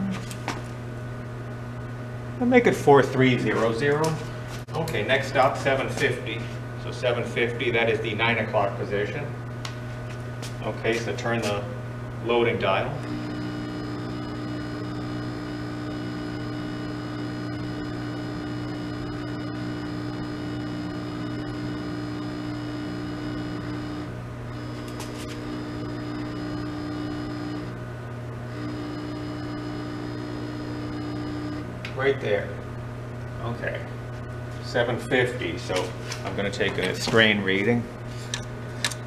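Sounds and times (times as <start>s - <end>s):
testing machine electric hum: 0.0s - 39.0s
machine whine: 10.6s - 32.8s.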